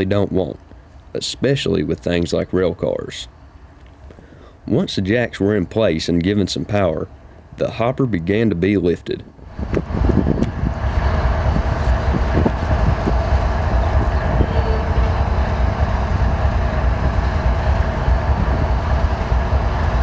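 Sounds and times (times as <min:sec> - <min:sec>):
diesel engine rumbling: 0:09.3 - 0:20.0.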